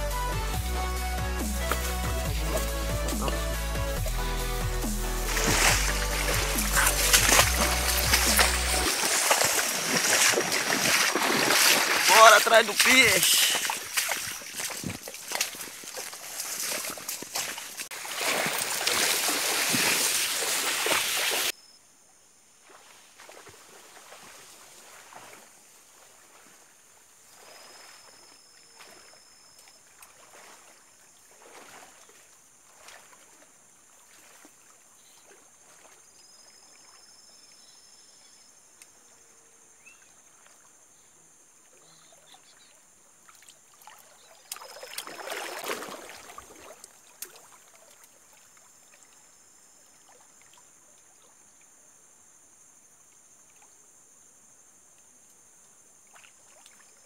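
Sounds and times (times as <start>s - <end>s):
water sloshing from wading: 1.4s - 21.5s, 22.7s - 37.0s, 43.2s - 49.2s.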